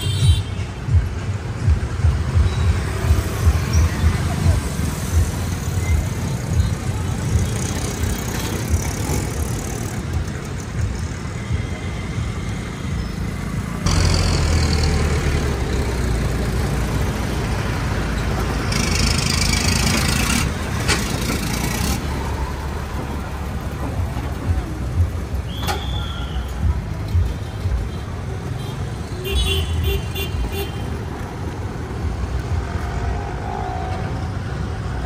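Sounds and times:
road traffic: 0.0s - 35.0s
diesel engines passing close: 1.0s - 29.2s, 30.4s - 35.0s
motorcycle engine: 13.2s - 17.6s.

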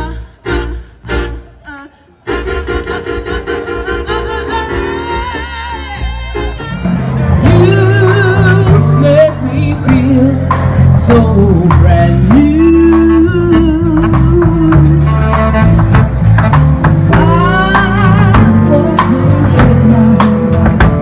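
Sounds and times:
stepping bass line: 2.3s - 21.0s.

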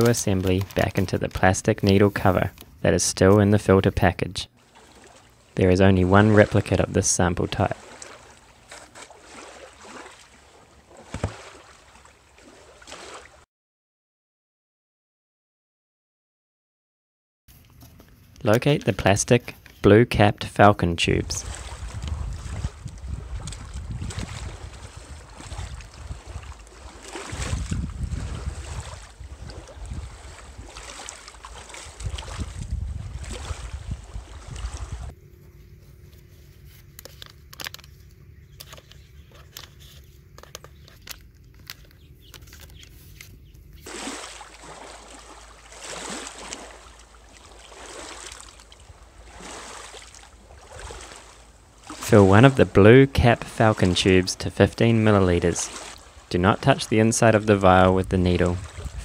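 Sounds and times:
river water trickling over stones: 7.8s - 13.4s, 21.5s - 35.1s, 43.8s - 52.2s, 55.7s - 56.3s
wind buffeting microphone: 21.1s - 35.1s, 57.9s - 59.0s.

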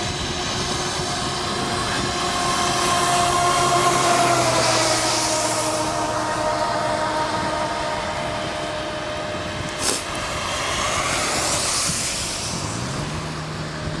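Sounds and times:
car tyres hissing on wet road: 0.0s - 14.0s
wind and bicycle tyre noise: 0.0s - 14.0s.

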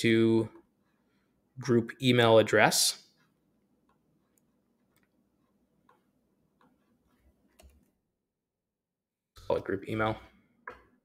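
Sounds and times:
keyboard and mouse clicks: 7.5s - 8.0s.

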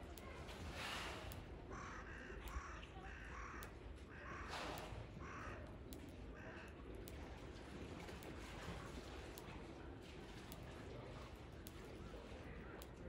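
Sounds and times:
faint outdoor background noise: 0.0s - 13.0s
crows cawing: 1.7s - 6.8s.

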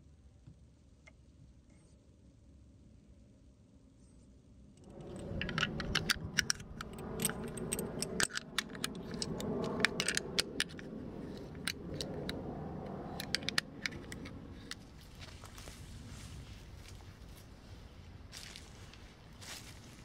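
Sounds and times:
low rumble: 4.8s - 20.0s
cartridges clicking into metal magazine: 5.2s - 12.4s, 13.1s - 14.8s.

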